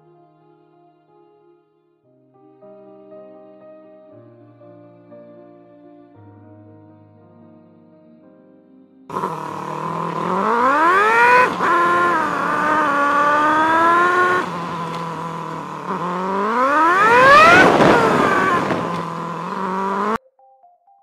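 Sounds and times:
rushing wind: 0:09.1 - 0:20.0
motorcycle engine revving hard: 0:09.1 - 0:20.2.

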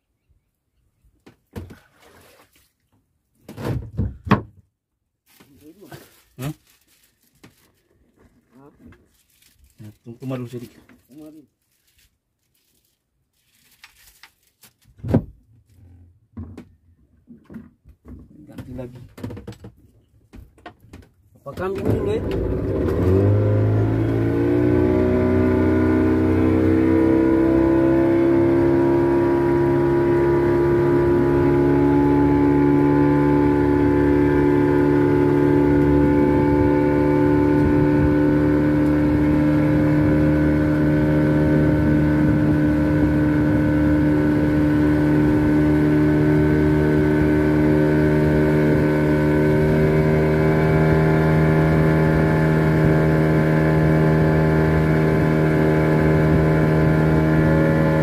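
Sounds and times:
boat engine running: 0:21.6 - 0:58.0.

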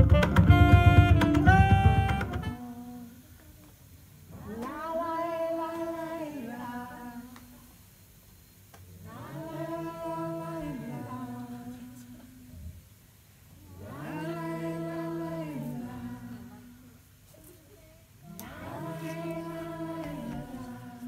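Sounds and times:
unaccompanied voices singing: 0:00.0 - 0:03.7, 0:04.3 - 0:07.8, 0:09.0 - 0:12.8, 0:13.5 - 0:17.6, 0:18.2 - 0:21.0.

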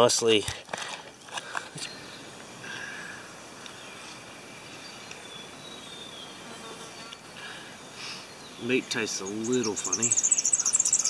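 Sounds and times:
insects hissing: 0:00.0 - 0:11.0
faint bird chirps: 0:01.2 - 0:11.0.

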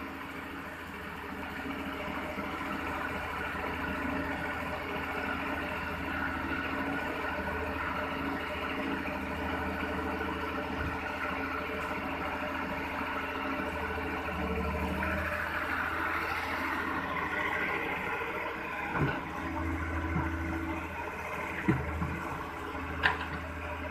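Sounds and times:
excavator diesel engine running: 0:00.0 - 0:23.9.

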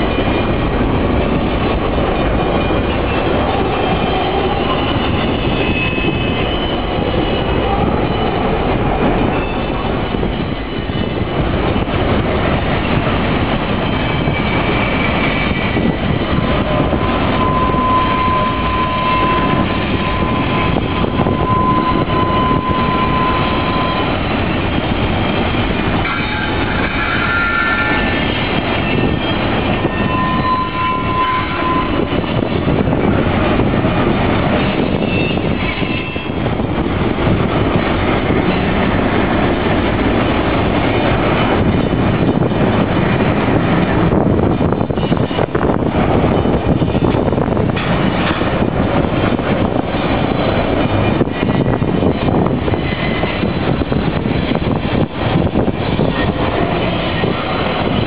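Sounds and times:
freight train rumbling past: 0:00.0 - 0:58.0
wheels squealing: 0:02.4 - 0:11.8, 0:13.7 - 0:24.9, 0:26.0 - 0:32.4.

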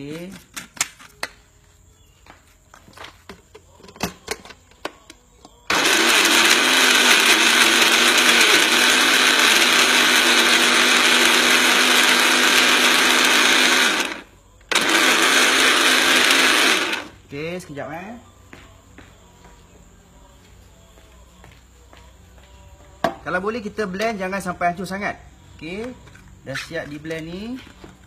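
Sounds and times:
blender motor running: 0:05.7 - 0:17.2.

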